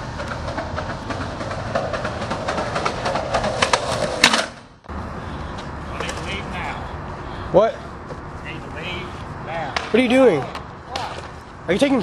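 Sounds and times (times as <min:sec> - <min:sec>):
skateboard clack: 0:00.0 - 0:04.7, 0:09.7 - 0:11.4
skateboard wheels rolling on concrete: 0:00.0 - 0:12.0.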